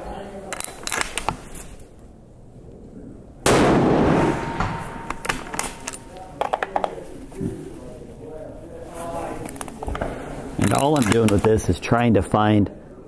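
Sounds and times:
rifle shot: 3.4s - 6.0s.

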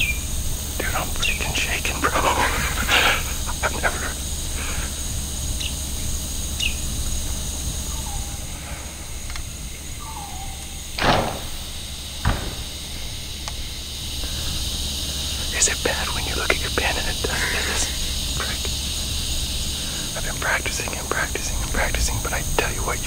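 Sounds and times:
bird chirps: 0.0s - 1.8s, 5.5s - 7.0s, 7.8s - 9.0s, 9.7s - 13.8s
insects trilling: 0.0s - 23.0s
loud rushing burst: 10.9s - 14.2s
sharp click: 11.0s - 12.8s.

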